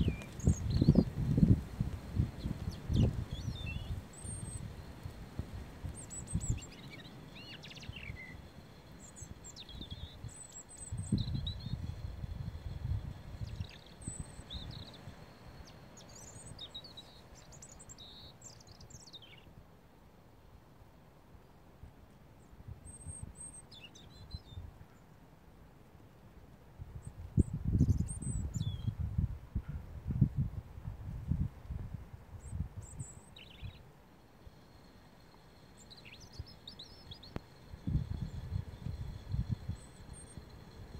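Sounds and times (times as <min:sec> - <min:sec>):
robin twittering and warbling: 0:00.0 - 0:01.5, 0:02.2 - 0:05.0, 0:05.9 - 0:19.4, 0:34.4 - 0:40.9.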